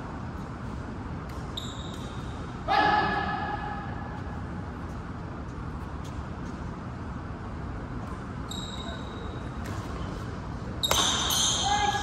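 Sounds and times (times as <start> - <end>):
steady low hum: 0.0 - 12.0
sneaker squeak on court floor: 1.3 - 2.4, 8.4 - 9.8, 10.8 - 11.7
racket hitting shuttlecock: 10.8 - 11.6.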